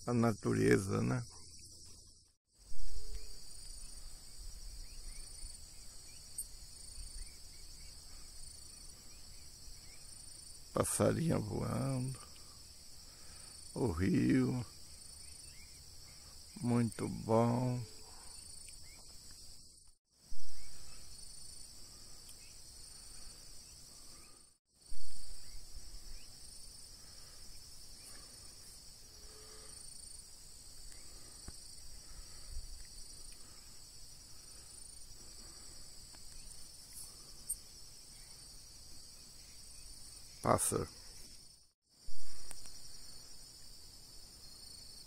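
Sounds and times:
crickets and insects chorus: 0.0 - 45.0.

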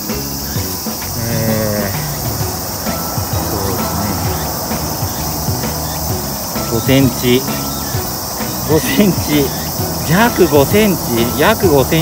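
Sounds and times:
insects chorus: 0.0 - 12.0.

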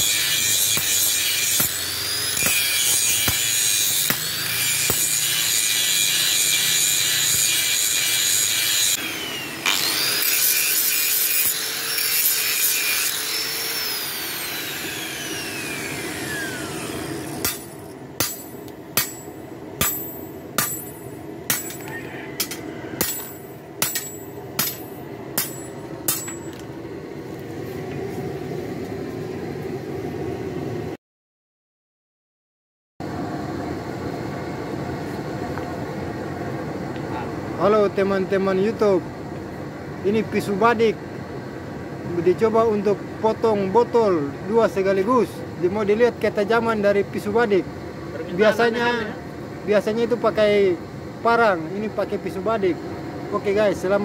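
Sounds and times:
angle grinder grinding steel: 0.0 - 26.6
grinder winding down whine: 8.8 - 10.4, 13.0 - 17.4.

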